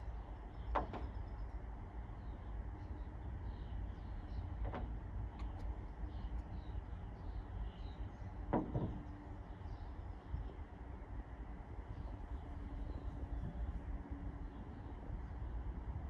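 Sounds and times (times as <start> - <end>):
wind on microphone: 11.7 - 16.0.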